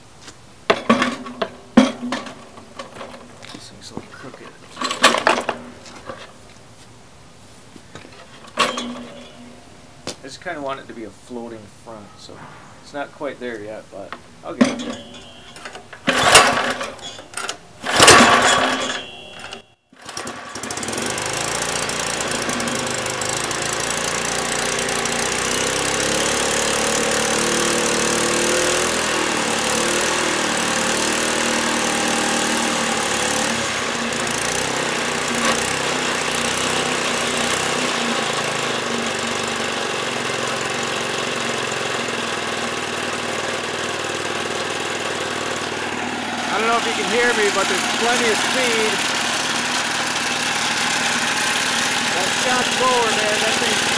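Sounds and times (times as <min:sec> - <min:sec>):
recoil starter cord pulls: 0:04.7 - 0:06.2, 0:08.2 - 0:09.5, 0:14.1 - 0:53.9
small gasoline engine running: 0:14.6 - 0:53.9.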